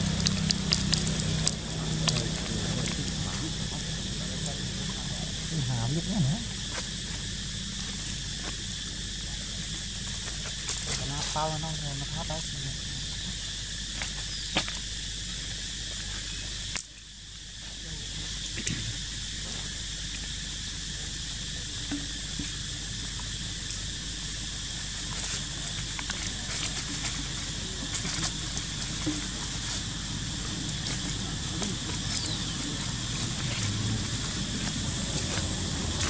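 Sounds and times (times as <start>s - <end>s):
dry leaves rustling: 0.0s - 5.5s, 6.5s - 13.0s, 24.4s - 36.0s
steady high hiss: 0.0s - 36.0s.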